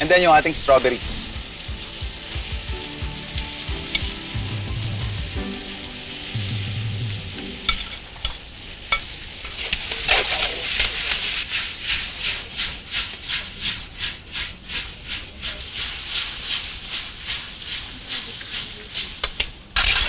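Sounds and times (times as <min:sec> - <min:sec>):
food sizzling in a wok: 0:00.0 - 0:20.0
spatula scraping and tossing food: 0:07.9 - 0:20.0.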